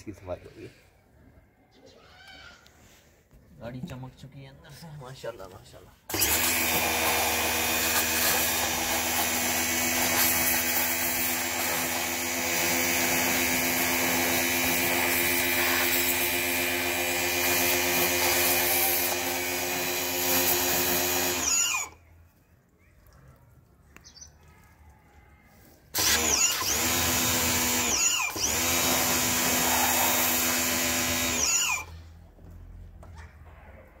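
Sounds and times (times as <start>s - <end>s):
pressure washer motor hum: 6.1s - 22.0s, 25.9s - 32.0s
water spray hissing: 14.7s - 16.3s.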